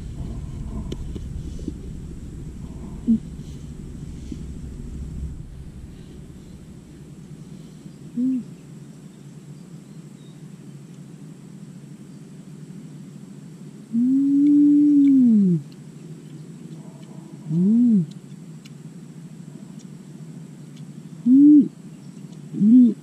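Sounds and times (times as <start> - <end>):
woman humming mmm while eating: 13.9 - 15.8, 17.0 - 18.2
faint clicks of snail shells: 14.4 - 21.2, 22.1 - 22.6.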